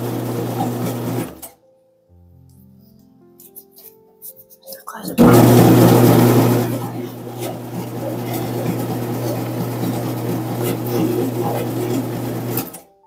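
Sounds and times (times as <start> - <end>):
dough kneading machine humming: 0.0 - 1.5, 5.2 - 12.9.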